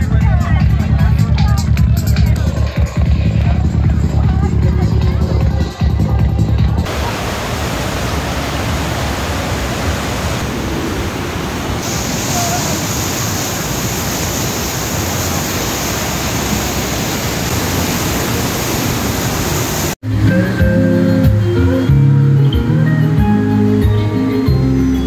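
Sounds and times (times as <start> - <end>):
white water rushing over boulders: 6.8 - 20.2.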